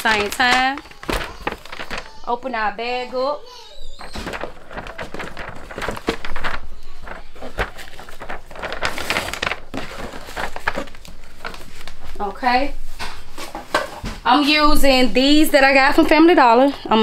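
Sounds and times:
paper gift bag rustling: 0.0s - 13.8s, 14.7s - 16.8s.

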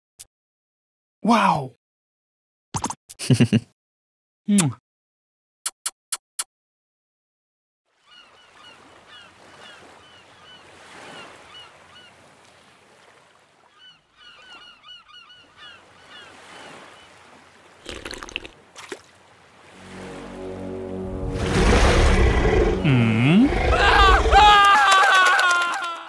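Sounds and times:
gulls squawking: 8.0s - 12.2s, 13.6s - 17.2s
surf washing: 15.6s - 25.3s.

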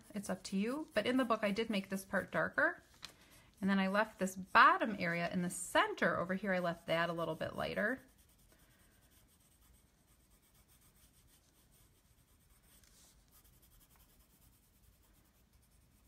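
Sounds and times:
colored pencil scratching on paper: 0.0s - 16.0s.

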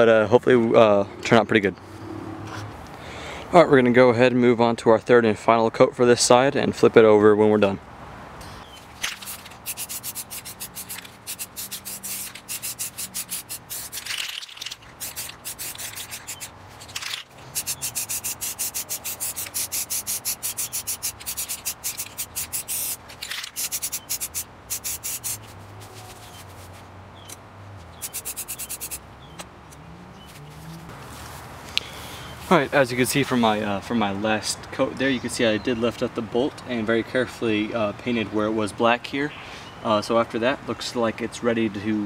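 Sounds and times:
spray paint can hissing: 9.0s - 26.8s, 28.0s - 29.0s.

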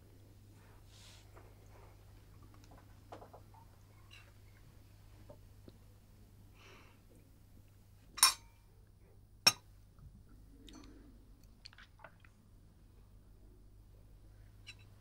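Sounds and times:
crockery clinking: 8.2s - 8.5s.

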